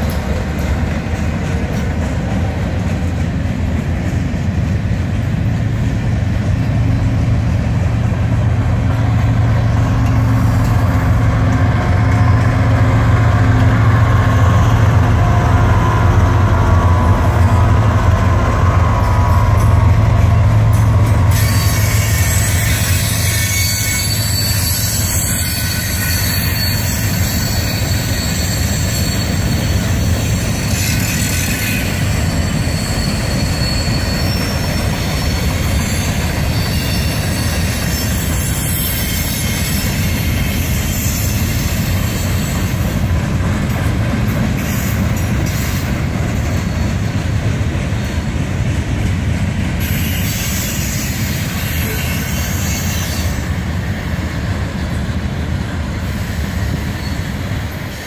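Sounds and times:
freight train wheels rumbling: 0.0s - 58.0s
high-pitched wheel squeal: 11.8s - 43.0s, 49.8s - 53.6s, 56.2s - 58.0s.

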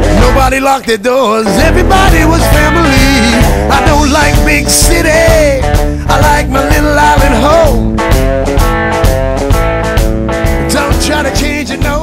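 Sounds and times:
person singing: 0.0s - 8.0s, 10.6s - 12.0s
band playing a song with guitar: 0.0s - 12.0s.

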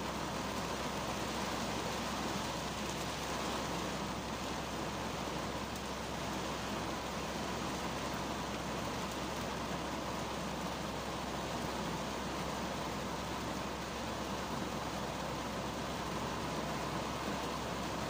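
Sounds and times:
rain on car roof from inside: 0.0s - 18.0s.

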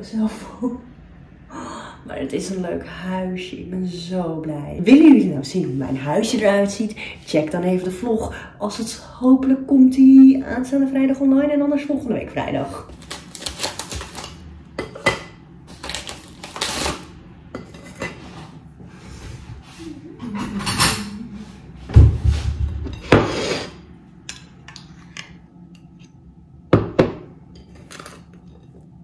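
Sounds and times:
knife scraping a plate: 17.6s - 18.6s, 22.9s - 23.8s
heavy thump: 21.9s - 22.8s.

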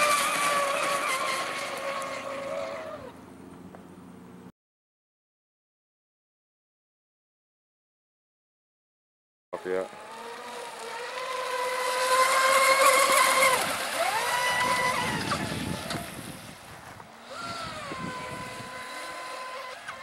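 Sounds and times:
electric boat motors whining: 0.0s - 4.5s, 9.6s - 20.0s.

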